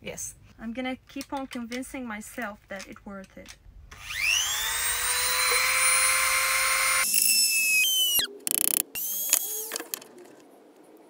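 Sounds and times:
drill bit buzzing into wood: 3.9 - 9.8
rotary tool high whine: 3.9 - 10.0.

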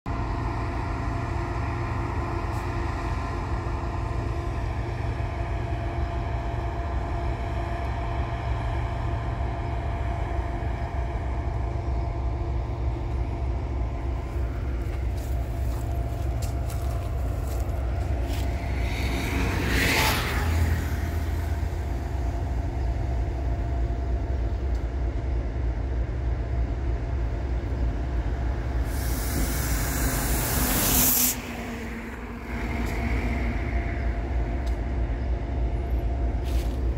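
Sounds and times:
machinery rumbling and humming: 0.1 - 36.9
hiss bursts: 28.8 - 32.1.

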